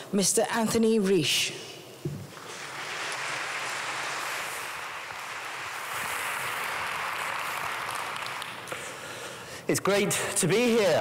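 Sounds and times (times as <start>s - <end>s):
audience applauding: 2.3s - 9.0s.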